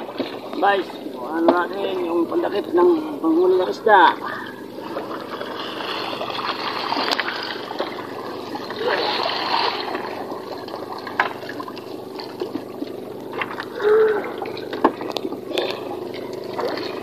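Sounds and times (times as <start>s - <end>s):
water splashing and trickling off net: 5.4s - 15.1s.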